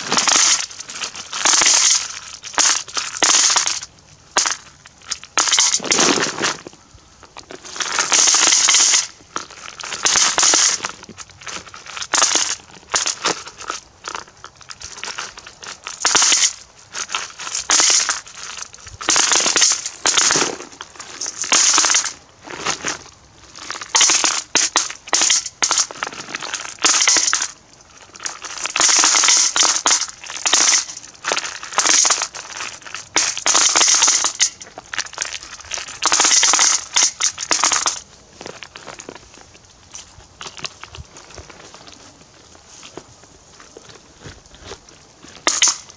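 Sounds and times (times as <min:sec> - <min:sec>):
coins clinking into metal bucket: 0:14.6 - 0:22.8, 0:23.6 - 0:27.6, 0:28.2 - 0:38.0, 0:45.4 - 0:45.9.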